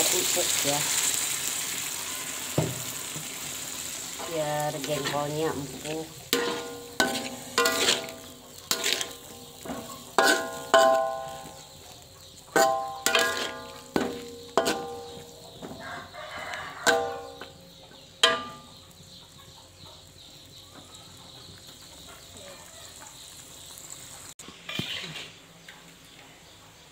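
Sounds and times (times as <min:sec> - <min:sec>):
metal spatula clanging on a wok: 0:04.2 - 0:15.8, 0:16.8 - 0:18.8.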